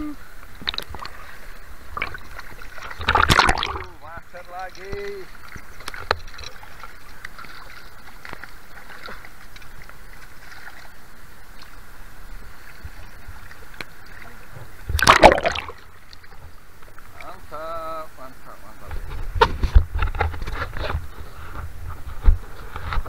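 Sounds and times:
river water flowing: 0.2 - 19.4
loud splash: 2.8 - 4.0, 15.0 - 15.8.

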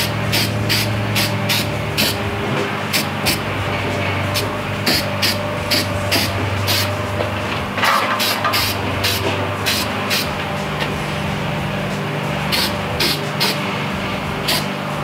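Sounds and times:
low background drone: 0.0 - 15.0
spray can hissing squirts: 0.3 - 2.2, 7.9 - 10.3, 12.5 - 13.7, 14.5 - 14.8.

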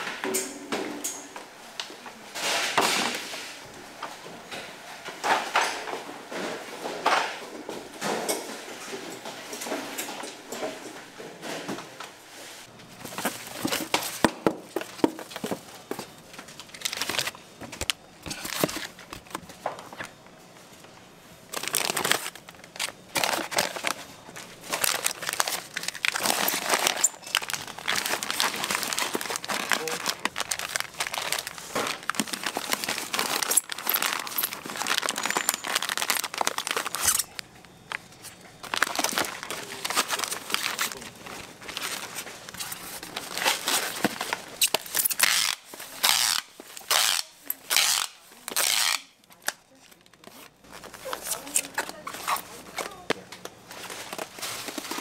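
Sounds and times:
plastic packaging crinkling: 13.0 - 20.2, 21.5 - 55.0.

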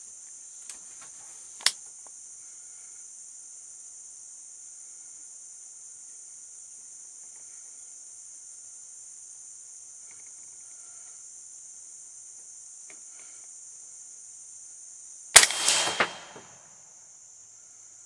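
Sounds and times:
insects chorus: 0.0 - 18.0
rifle shot with echo: 15.4 - 16.6.

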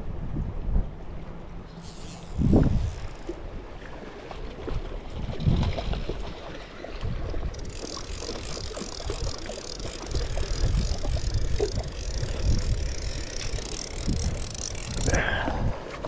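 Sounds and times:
wind rumbling on microphone: 0.0 - 1.6, 2.2 - 3.8, 4.4 - 16.0
fishing reel ratchet clicking: 1.8 - 3.4, 7.5 - 15.5.

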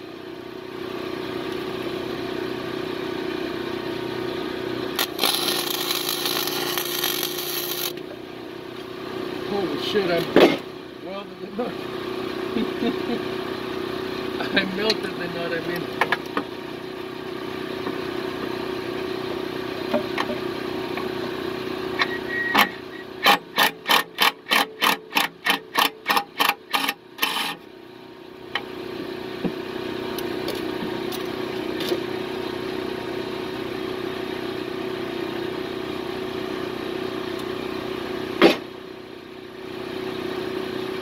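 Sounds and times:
steady mechanical hum: 0.0 - 41.0
welder arc crackling: 4.9 - 8.0.

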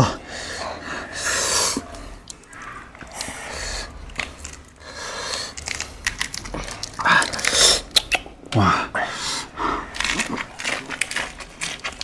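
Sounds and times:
rustling of lettuce leaves: 9.8 - 12.0.

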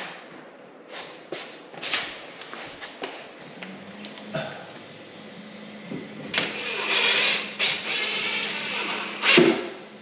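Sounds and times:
cordless driver motor whine: 5.2 - 9.4.

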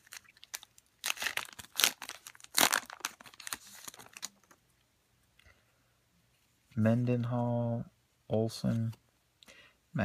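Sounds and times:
plastic wrapper crinkling and tearing: 0.0 - 4.6.

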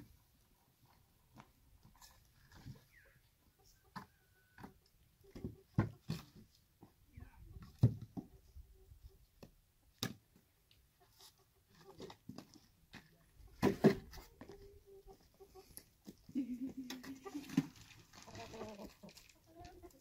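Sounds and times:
hens calling faintly: 1.9 - 5.8, 13.1 - 20.0.

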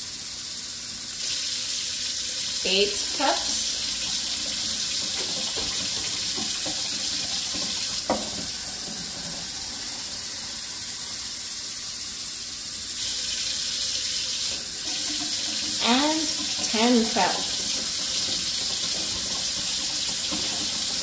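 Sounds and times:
faucet running into a metal sink: 1.0 - 21.0
plastic cup knocking: 7.6 - 8.5.

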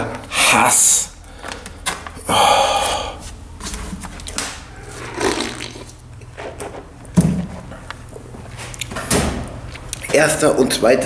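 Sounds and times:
person drinking and swallowing: 5.0 - 6.0.

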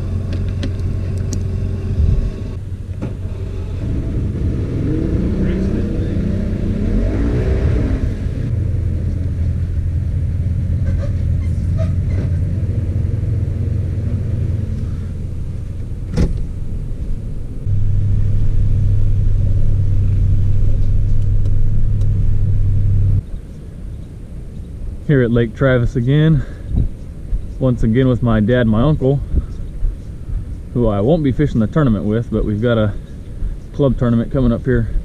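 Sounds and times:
truck engine drone: 0.0 - 26.1.

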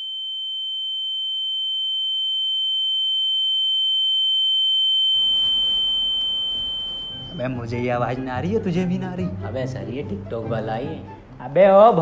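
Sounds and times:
fainter lower tone: 0.0 - 8.5
high-pitched electronic tone: 4.8 - 8.3.

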